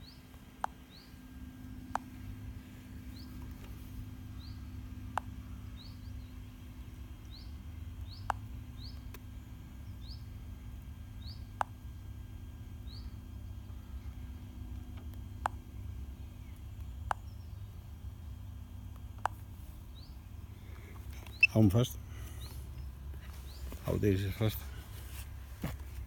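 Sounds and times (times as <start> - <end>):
bird chirping: 0.0 - 10.4, 11.2 - 11.6, 12.8 - 14.4, 15.8 - 17.8, 19.9 - 24.8
sharp clicks: 1.8 - 2.4, 7.2 - 9.3, 18.9 - 19.5.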